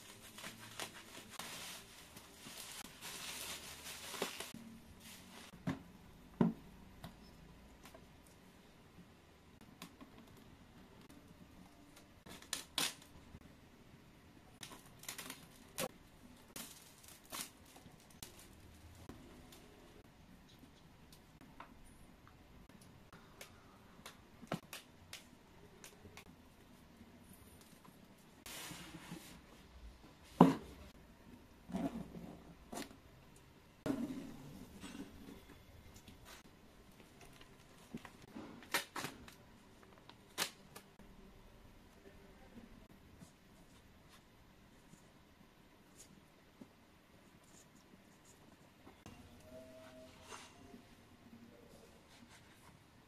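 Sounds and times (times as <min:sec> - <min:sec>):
plastic shrink wrap crackling: 0:00.0 - 0:04.5.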